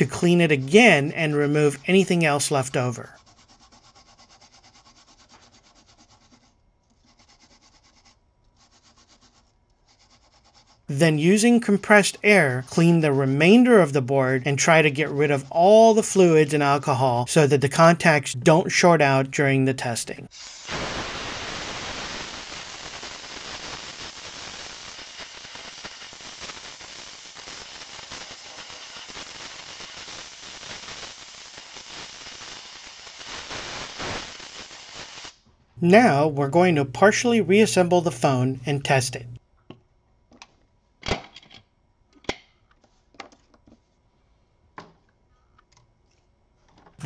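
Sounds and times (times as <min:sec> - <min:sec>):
small brush scrubbing circuit board: 0:00.4 - 0:13.7
compressed air hissing: 0:20.3 - 0:35.4.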